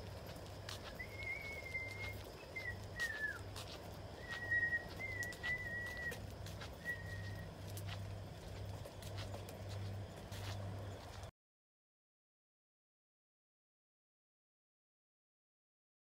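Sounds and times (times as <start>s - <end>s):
footsteps on concrete: 0.0s - 11.3s
high whistled notes: 1.0s - 3.4s, 4.2s - 6.2s, 6.8s - 7.5s.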